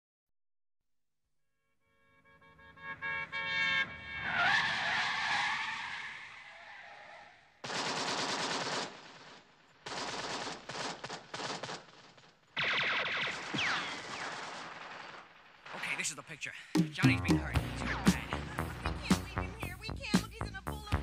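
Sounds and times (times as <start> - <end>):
car tyres squealing: 3.0 - 7.4
machine-gun fire: 7.6 - 16.0.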